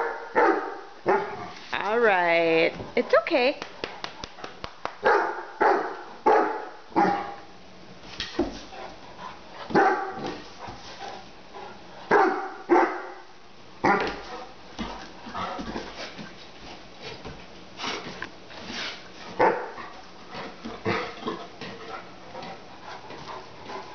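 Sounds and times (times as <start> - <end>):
dog barking: 0.0 - 1.4, 5.0 - 7.4, 9.7 - 10.2, 12.1 - 13.2, 13.8 - 14.2, 19.4 - 19.8.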